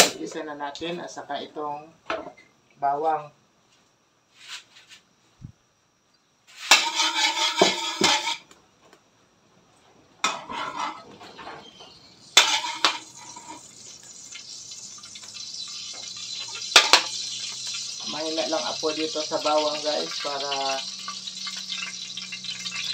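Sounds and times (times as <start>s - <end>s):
garlic sizzling in hot oil: 6.5s - 8.5s, 10.2s - 22.9s.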